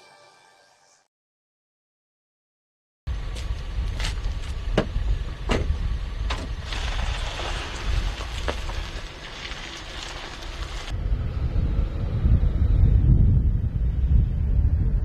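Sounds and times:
vehicle running close by: 3.1 - 15.0
wind rumble on microphone: 3.1 - 15.0.

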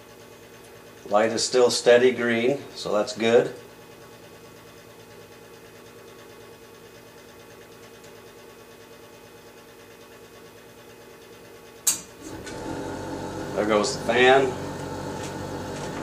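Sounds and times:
exhaust fan motor humming: 0.0 - 16.0
sharp click: 11.8 - 12.1.

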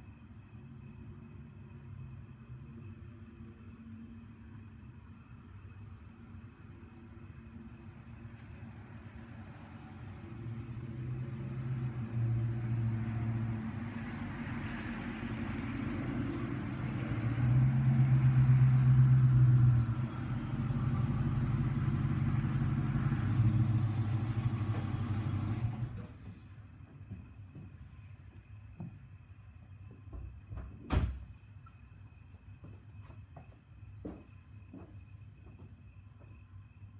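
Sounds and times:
car engine rumble: 8.2 - 26.8.

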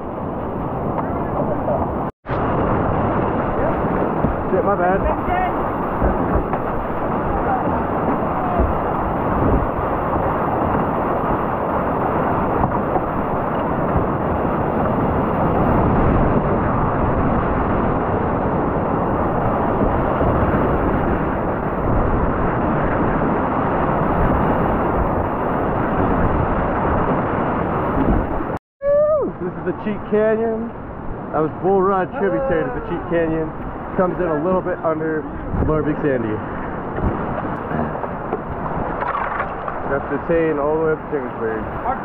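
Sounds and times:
whitewater rapids rushing: 0.7 - 16.2.

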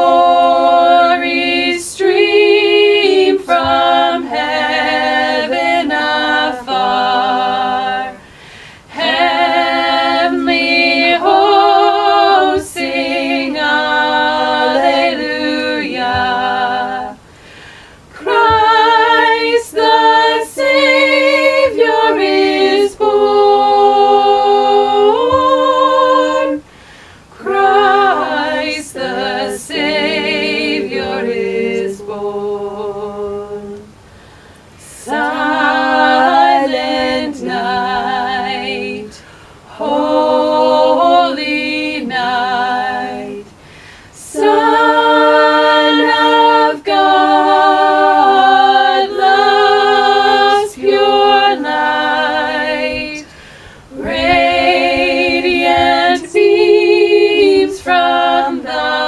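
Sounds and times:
person singing a cappella: 0.0 - 59.0
person breathing: 8.2 - 8.9, 17.3 - 18.1, 26.7 - 27.3, 34.0 - 34.7, 39.2 - 39.6, 43.6 - 44.2, 53.3 - 53.9.

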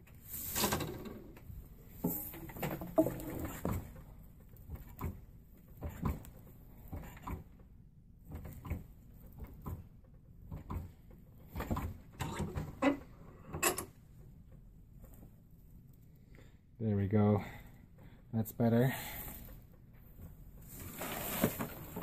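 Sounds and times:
cord rustling and scraping: 20.6 - 22.0.

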